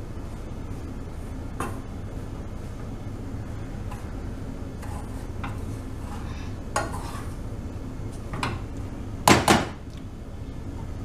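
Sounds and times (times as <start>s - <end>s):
spoon scraping saucepan: 4.8s - 7.4s.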